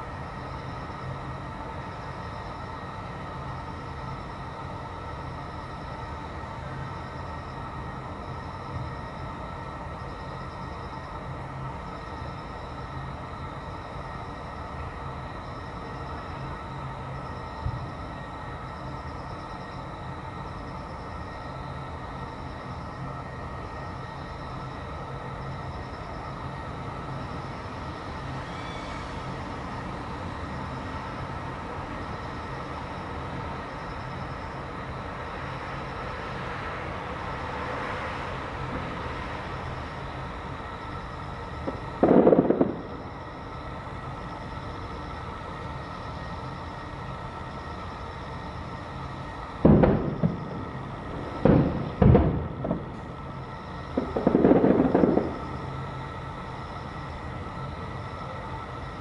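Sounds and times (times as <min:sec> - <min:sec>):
low background hum: 0:00.0 - 0:59.0
distant fireworks booming: 0:41.6 - 0:43.6, 0:49.6 - 0:55.8.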